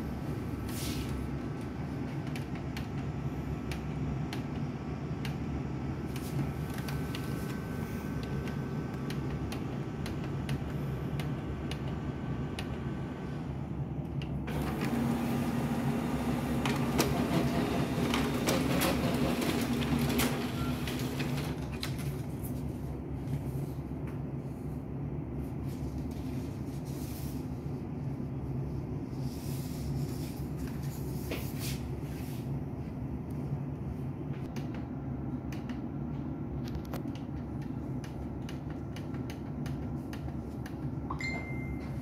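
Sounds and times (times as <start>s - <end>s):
printer feeding and printing page: 0.6s - 13.6s, 14.4s - 22.2s
laser printer humming: 2.7s - 21.6s.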